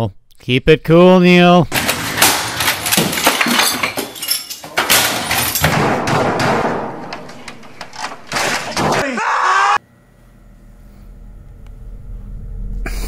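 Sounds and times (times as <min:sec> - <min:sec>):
keyboard being smashed: 0:01.7 - 0:09.1.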